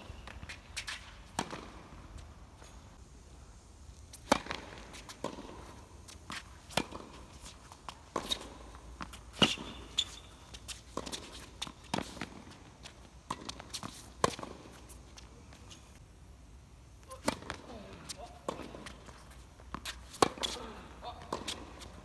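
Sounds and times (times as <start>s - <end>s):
tennis ball bouncing: 0.2s - 1.9s, 4.2s - 14.8s, 17.1s - 22.0s.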